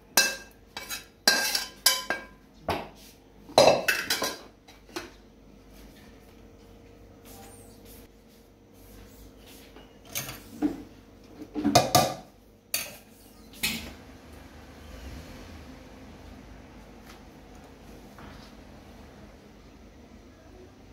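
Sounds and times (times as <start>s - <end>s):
knife clinking against metal pot: 0.2s - 2.3s.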